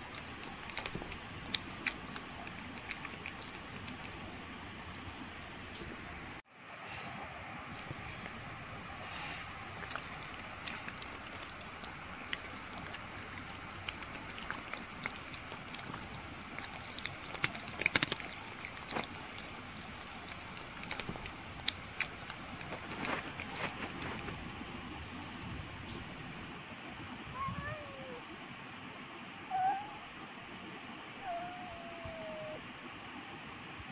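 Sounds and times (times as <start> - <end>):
kitten licking: 0.0 - 6.3, 7.7 - 26.5.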